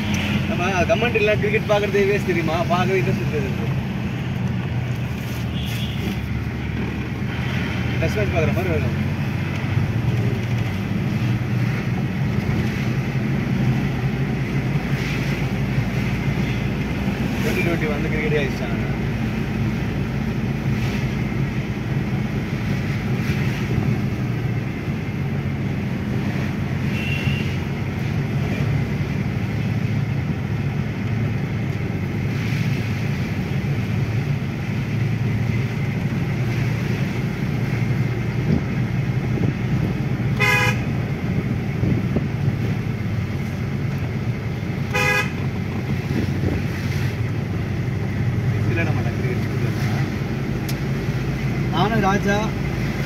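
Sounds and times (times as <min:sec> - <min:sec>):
car engine and road noise: 0:00.0 - 0:53.0
car horn toots: 0:26.9 - 0:27.6, 0:40.4 - 0:40.9, 0:44.9 - 0:45.4.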